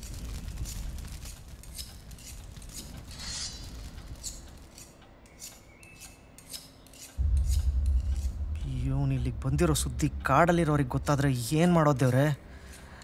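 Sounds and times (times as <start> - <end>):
straight razor scraping on whetstone: 4.2 - 8.3.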